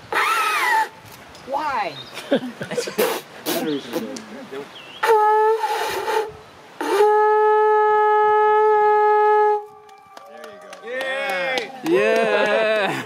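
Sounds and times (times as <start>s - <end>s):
conch shell horn blasts: 5.0s - 10.1s.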